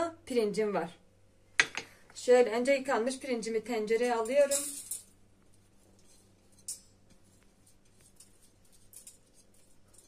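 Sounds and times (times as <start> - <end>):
wet rice scraped from glass bowl: 5.8 - 10.0.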